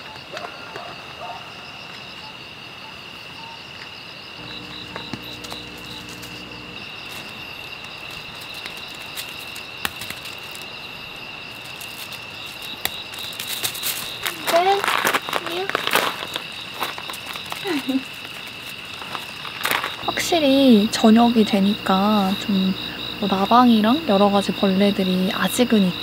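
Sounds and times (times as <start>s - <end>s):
crickets chirping: 0.0s - 26.0s
low hum: 4.4s - 7.4s.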